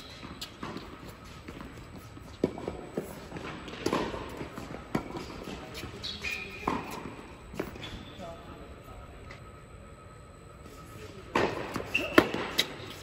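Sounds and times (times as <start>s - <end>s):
tennis balls bouncing on court: 0.0s - 7.8s, 11.3s - 13.0s
tennis balls struck by rackets: 0.2s - 7.8s, 11.3s - 13.0s.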